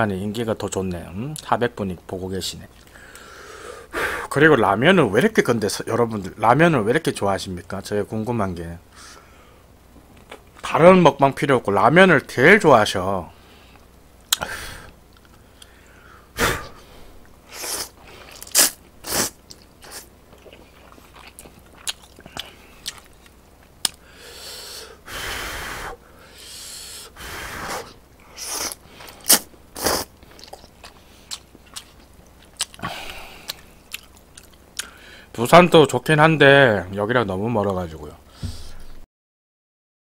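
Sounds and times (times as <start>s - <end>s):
man slurping noodles: 17.5s - 20.6s, 27.2s - 30.1s.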